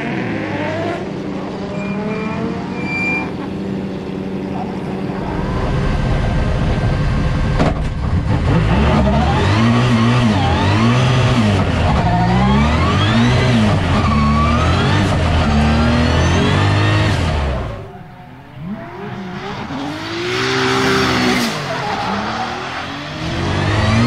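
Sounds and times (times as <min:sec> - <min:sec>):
car engine revving hard: 0:08.2 - 0:17.9, 0:18.6 - 0:24.0.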